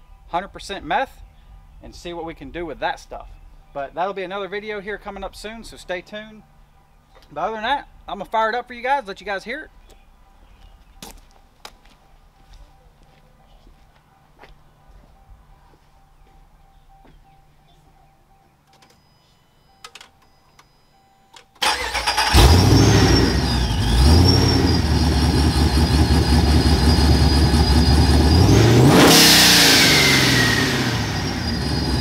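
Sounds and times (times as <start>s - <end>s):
engine starting: 21.6s - 24.8s
engine idling: 21.6s - 32.0s
engine revving: 21.6s - 32.0s.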